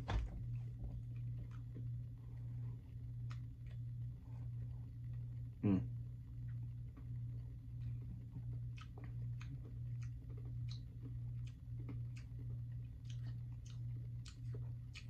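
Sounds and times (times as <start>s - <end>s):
steady low hum: 0.0s - 15.0s
teeth clicking: 8.5s - 15.0s.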